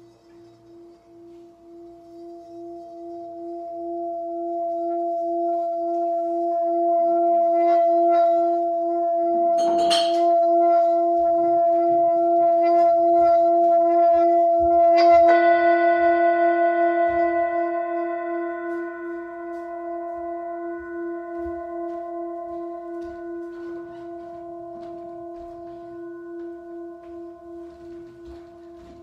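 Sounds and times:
singing bowl ringing hum: 0.0s - 29.0s
mallet scraping bowl rim: 5.6s - 15.6s.

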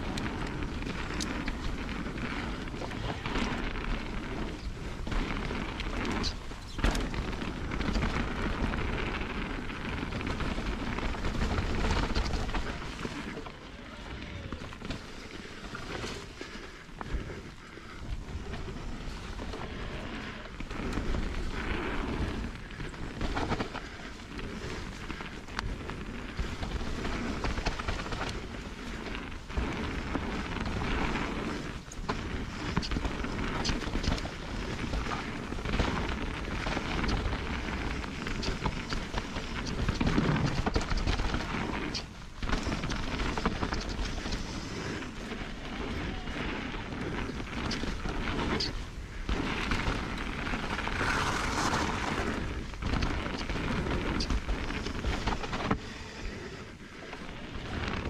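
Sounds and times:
bike clicks and rattles: 0.0s - 58.0s
tyres rumbling on dirt: 0.0s - 58.0s
wind on microphone: 18.2s - 58.0s.

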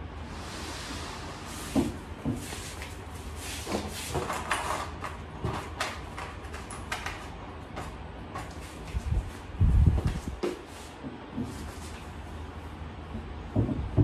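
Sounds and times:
shelf panels knocking and scraping: 1.7s - 2.8s, 13.2s - 14.0s.

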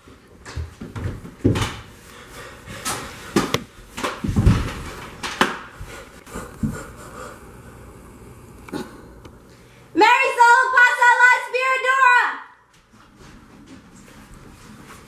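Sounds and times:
person tumbling on hard floor: 3.3s - 5.5s.

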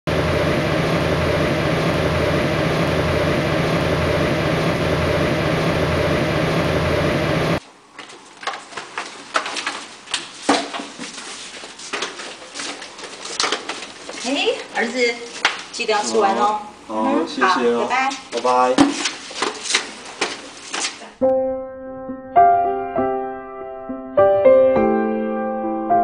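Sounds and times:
machine-like drone: 0.1s - 7.6s.

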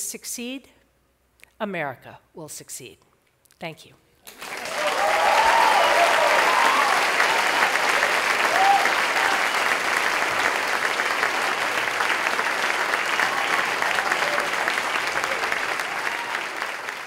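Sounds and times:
audience applauding: 4.3s - 17.0s.

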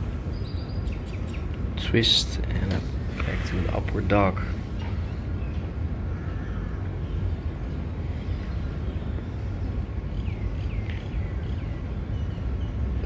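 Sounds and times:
steady low rumble: 0.0s - 13.0s
bird chirps: 0.3s - 1.6s.

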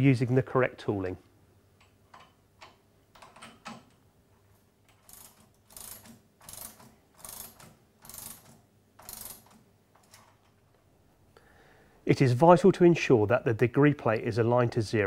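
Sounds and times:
ratchet spanner ratcheting: 4.9s - 10.4s.

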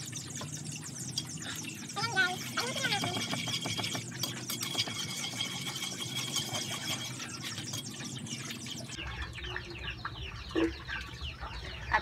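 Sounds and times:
hot oil sizzling in a wok: 0.0s - 9.0s
metal spatula scraping a pan: 2.6s - 8.9s.

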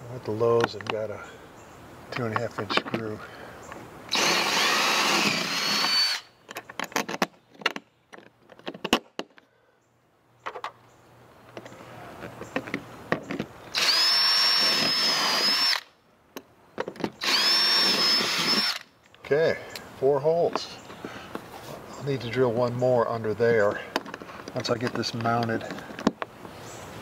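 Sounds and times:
handling clicks and rattles: 2.1s - 3.2s, 6.4s - 9.4s, 23.7s - 26.5s
cordless drill motor whine: 4.1s - 6.3s, 13.7s - 15.9s, 17.2s - 18.9s.

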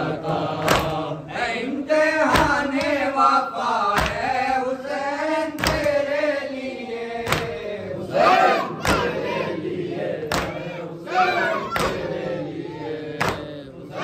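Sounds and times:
men chanting in unison: 0.0s - 14.0s
hand slaps on chest: 0.6s - 1.0s, 4.0s - 4.3s, 5.6s - 6.0s, 7.2s - 7.6s, 8.8s - 9.2s, 10.2s - 10.7s, 11.7s - 12.1s, 13.2s - 13.5s.

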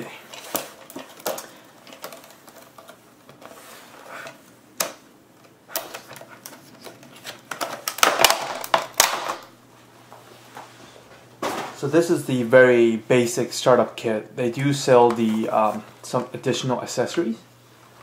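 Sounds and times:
plastic packaging crackling: 0.0s - 3.7s, 5.7s - 9.6s.

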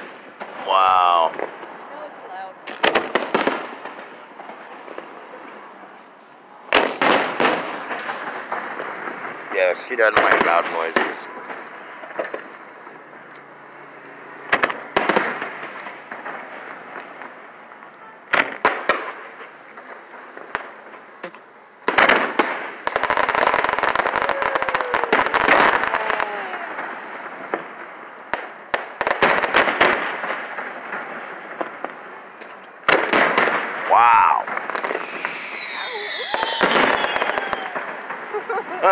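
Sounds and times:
fireworks booming: 0.0s - 38.9s
fireworks crackling: 0.0s - 38.9s
falling whistles: 33.9s - 38.4s.

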